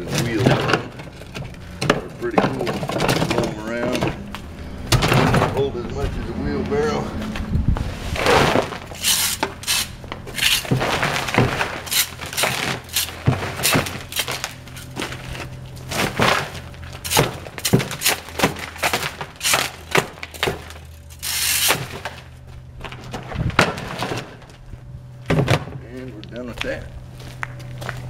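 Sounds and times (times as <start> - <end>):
rake scraping leaves: 7.8 - 22.4.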